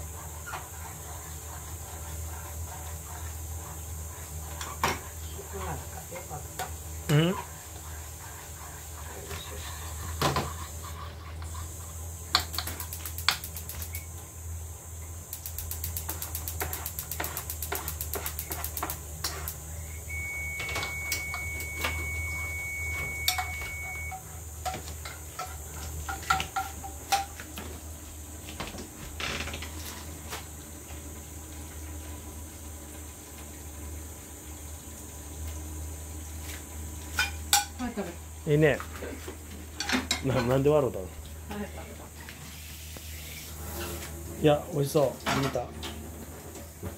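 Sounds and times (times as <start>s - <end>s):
thin high tone: 19.8s - 24.2s.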